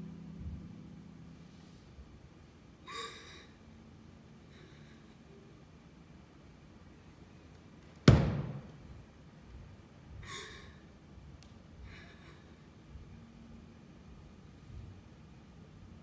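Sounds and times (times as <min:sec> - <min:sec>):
sharp thud in large room: 0:08.0 - 0:08.8.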